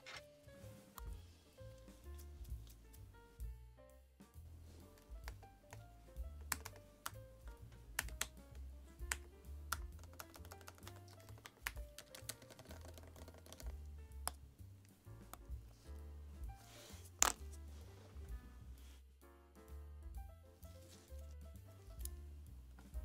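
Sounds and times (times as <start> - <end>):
background music: 0.0 - 23.0
keyboard keys clicking: 5.0 - 7.2, 7.9 - 8.4, 9.0 - 14.4.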